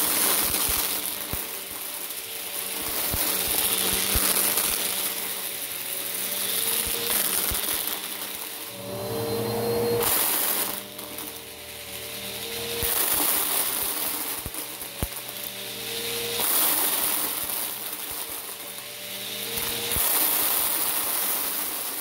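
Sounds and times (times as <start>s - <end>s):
plastic beads sucked up clicking: 0.0s - 5.5s, 6.2s - 8.7s, 10.0s - 11.5s, 12.2s - 22.0s
vacuum cleaner running over carpet: 0.0s - 22.0s.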